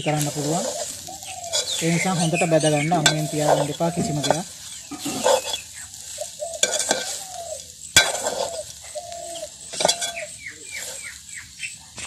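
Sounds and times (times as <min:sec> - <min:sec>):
bird chirps: 0:00.0 - 0:12.0
faint sizzle: 0:00.0 - 0:12.0
metal spoon scraping metal pot: 0:00.2 - 0:08.8, 0:09.7 - 0:11.2
spoon clinking against pot: 0:02.9 - 0:05.6, 0:06.6 - 0:07.3, 0:08.0 - 0:08.6, 0:09.7 - 0:10.3.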